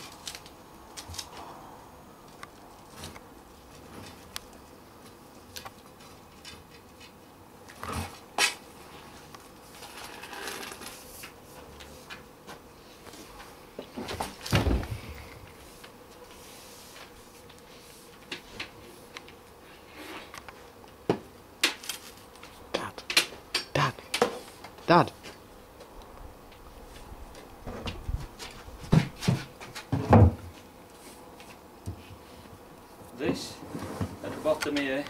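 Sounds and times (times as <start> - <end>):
heavy low thump: 14.6 - 15.2.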